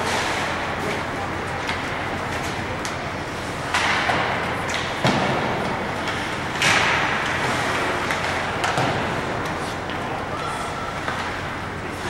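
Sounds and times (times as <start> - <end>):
puck and players hitting boards: 0.0 - 12.0.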